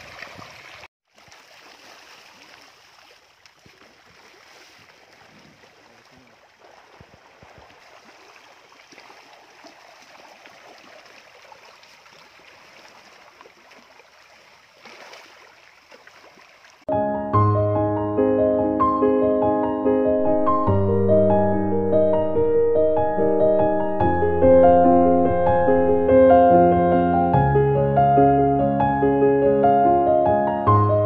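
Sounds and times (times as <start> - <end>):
fish splashing at water surface: 0.0 - 16.8.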